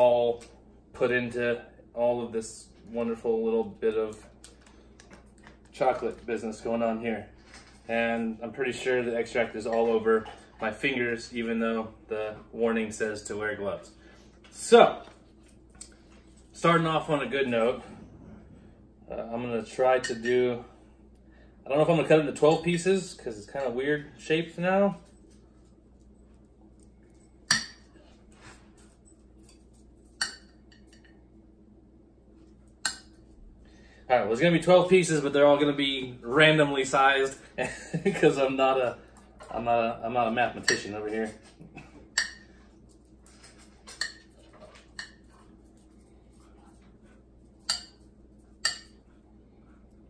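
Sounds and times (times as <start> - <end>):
knife clinking against a plate: 47.6 - 49.0.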